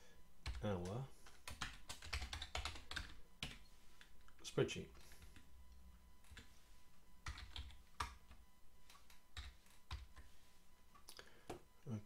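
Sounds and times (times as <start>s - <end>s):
keyboard typing: 0.4s - 4.1s, 6.2s - 6.5s, 7.2s - 10.3s.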